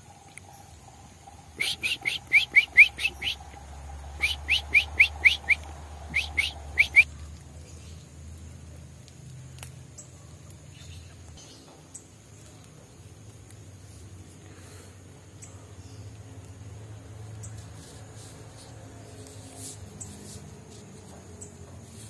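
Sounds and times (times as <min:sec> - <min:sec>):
young songbird chirping: 0:00.4 - 0:08.0.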